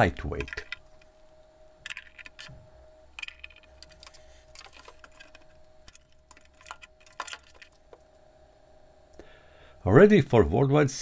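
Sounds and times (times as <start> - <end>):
faint steady hum: 0.0 - 11.0
screwdriver and metal panels clicking: 0.2 - 1.1.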